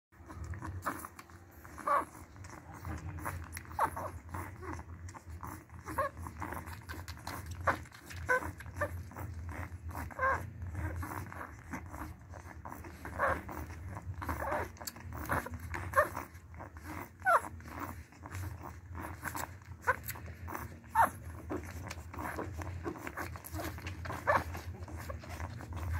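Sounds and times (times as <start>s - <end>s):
puppies squeaking and whimpering: 0.2s - 25.9s
wet suckling clicks: 6.2s - 9.2s, 13.4s - 16.4s.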